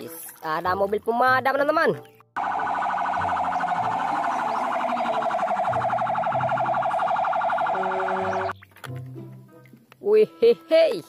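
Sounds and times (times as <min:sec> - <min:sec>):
fire truck siren warbling: 0:02.4 - 0:08.5.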